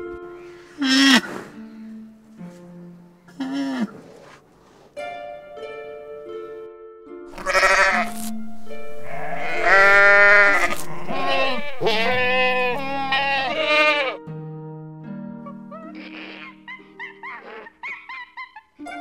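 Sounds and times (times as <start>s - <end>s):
soft background music: 0.0s - 18.2s, 18.8s - 19.0s
livestock bleating: 7.3s - 8.4s, 9.0s - 14.2s, 15.8s - 16.6s.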